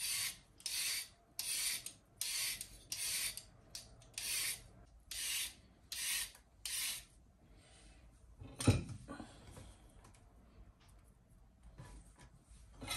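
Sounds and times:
peeler scraping a carrot: 0.0 - 7.1.

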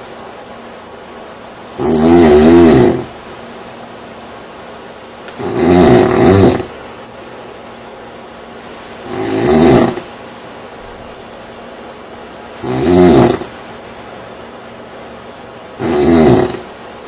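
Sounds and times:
man snoring loudly: 1.8 - 3.1, 5.4 - 6.7, 9.0 - 10.1, 12.6 - 13.5, 15.8 - 16.7.

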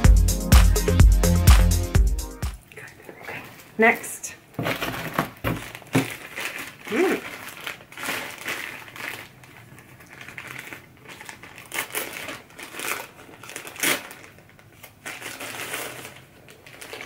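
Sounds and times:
paper and cardboard crinkling: 4.6 - 17.0.

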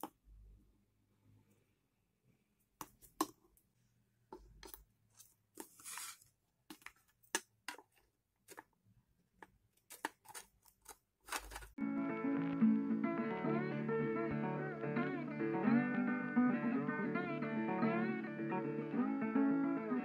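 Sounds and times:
board scraping: 5.6 - 6.2.

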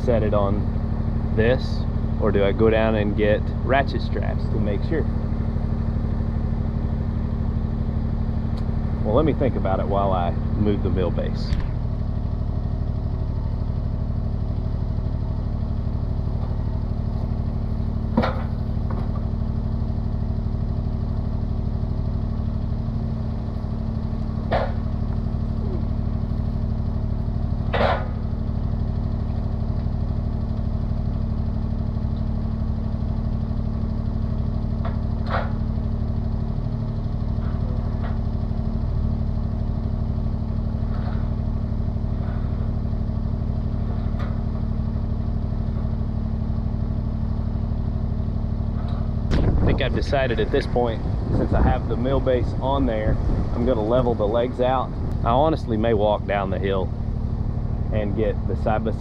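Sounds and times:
tractor engine idling: 0.0 - 59.0.

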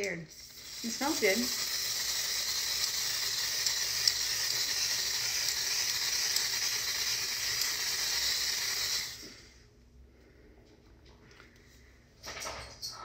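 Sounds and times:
aerosol spray hissing: 0.4 - 9.3.

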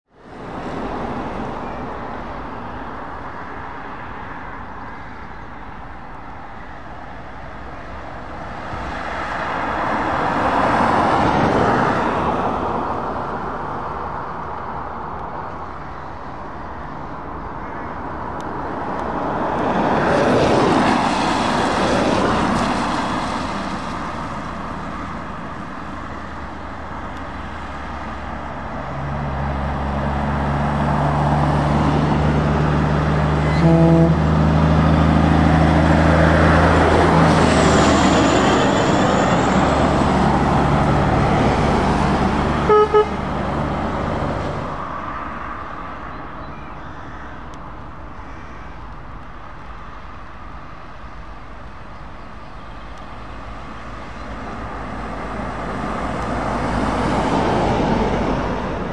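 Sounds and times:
traffic on a wet road: 0.1 - 58.9
heavy truck engine: 5.8 - 45.5.

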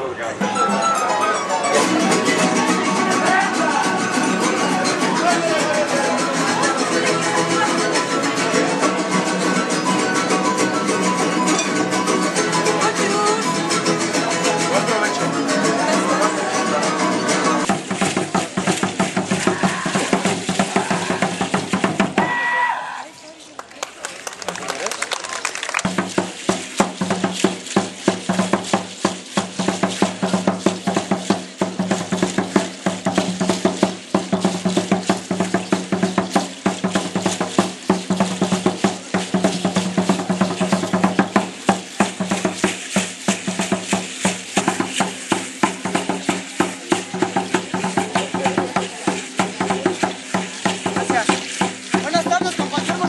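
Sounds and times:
rattles shaking: 1.6 - 22.2, 24.2 - 53.0
wooden drum beaten fast: 17.6 - 22.5, 25.8 - 53.0.

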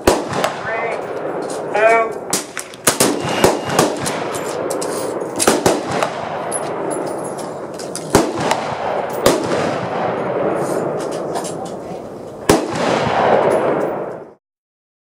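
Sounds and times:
rifle shots echoing: 0.0 - 14.4.

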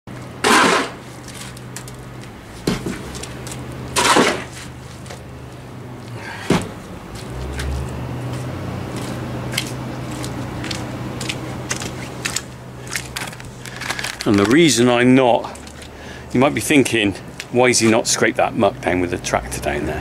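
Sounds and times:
steady low hum: 0.1 - 20.0
shovel scraping: 0.4 - 1.6, 4.0 - 4.8.

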